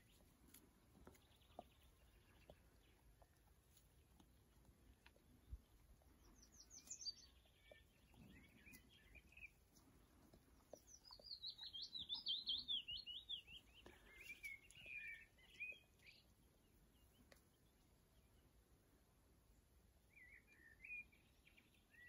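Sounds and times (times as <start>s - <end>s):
warbler singing: 5.4s - 17.6s, 20.1s - 22.0s.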